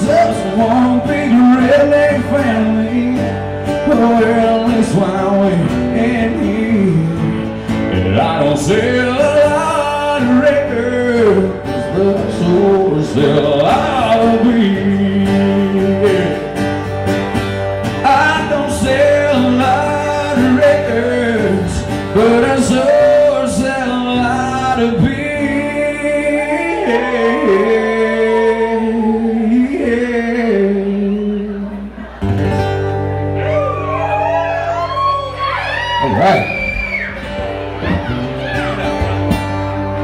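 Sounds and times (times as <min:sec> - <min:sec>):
man singing: 0:00.0 - 0:16.8, 0:17.8 - 0:32.2
strummed acoustic guitar: 0:00.0 - 0:33.9, 0:36.2 - 0:40.0
electric guitars: 0:00.0 - 0:40.0.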